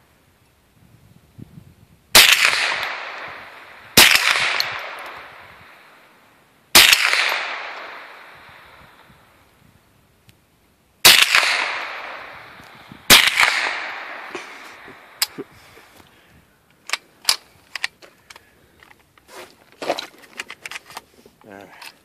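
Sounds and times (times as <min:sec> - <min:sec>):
rifle shots echoing: 0:02.1 - 0:06.1, 0:06.7 - 0:09.1, 0:11.0 - 0:15.3
rifle handling clicks: 0:16.7 - 0:22.0.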